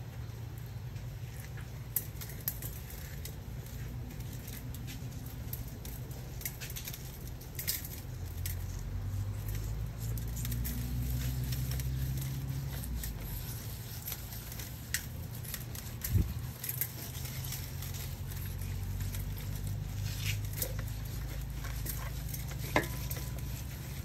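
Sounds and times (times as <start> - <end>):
hand rubbing salt into skin: 8.2 - 24.0.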